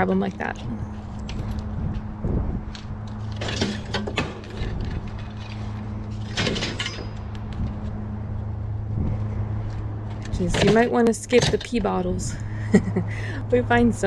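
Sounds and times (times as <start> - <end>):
steady low hum: 0.0 - 14.0
metal scrap clanking: 3.3 - 7.3.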